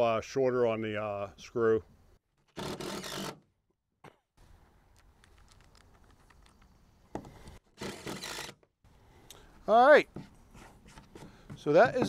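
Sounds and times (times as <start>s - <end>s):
cordless drill driving screw: 2.6s - 3.4s, 7.8s - 8.6s
small clicks of screw handling: 4.9s - 6.7s.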